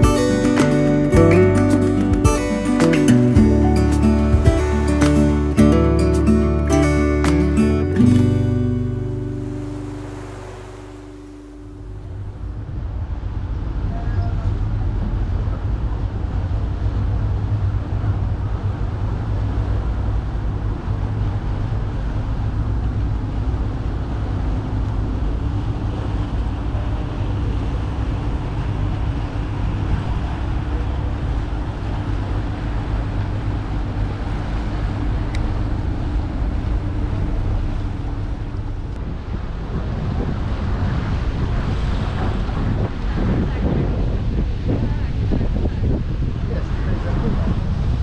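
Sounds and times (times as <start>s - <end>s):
boat engine rumbling: 0.0s - 48.0s
water rushing along hull: 0.0s - 48.0s
wind buffeting microphone: 11.8s - 48.0s.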